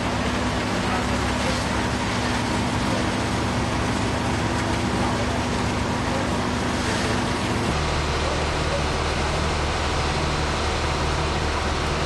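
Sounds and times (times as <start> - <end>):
street noise: 0.0 - 12.0
vehicle engines idling: 0.0 - 12.0.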